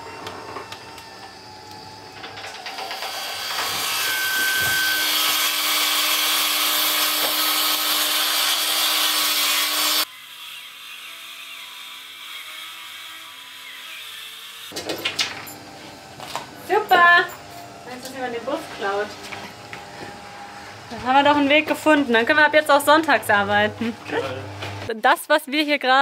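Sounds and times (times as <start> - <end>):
power saw cutting wood: 0.0 - 14.8
high whistle: 4.0 - 5.1.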